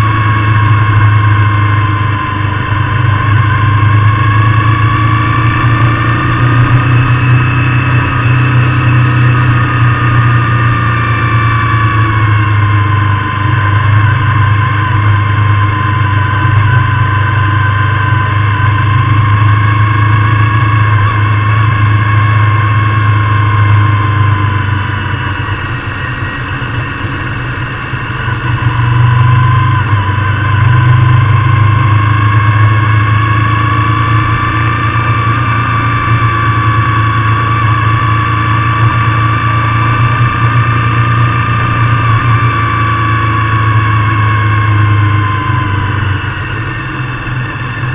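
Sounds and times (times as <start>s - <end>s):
motorcycle engine running: 0.0s - 47.9s.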